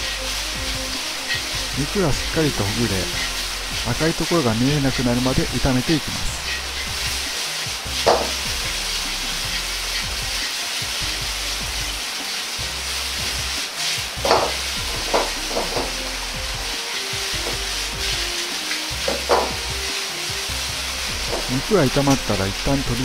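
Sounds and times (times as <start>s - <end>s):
meat sizzling in oil: 0.0s - 23.0s.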